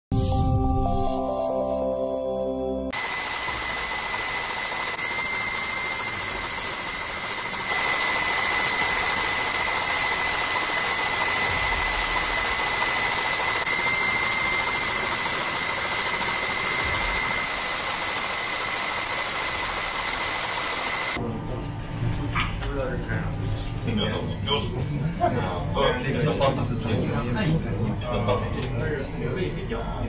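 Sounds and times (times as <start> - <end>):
aircraft engine hiss and whine: 2.9 - 22.3.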